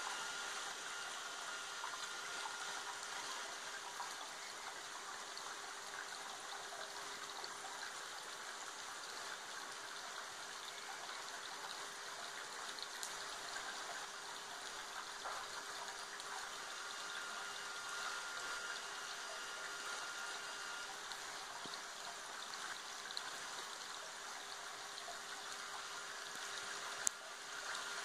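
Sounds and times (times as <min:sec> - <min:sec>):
rain on a pond: 0:00.0 - 0:28.0
waterfall trickling over rocks: 0:00.0 - 0:28.0.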